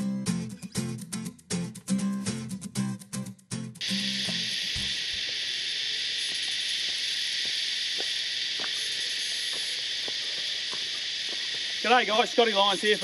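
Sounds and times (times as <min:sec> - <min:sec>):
cicadas buzzing: 0:03.8 - 0:13.0
faint footsteps on rocky dirt: 0:06.3 - 0:11.8.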